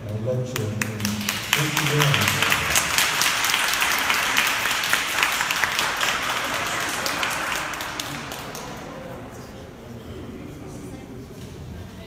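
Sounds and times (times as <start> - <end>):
audience applauding: 0.6 - 9.3.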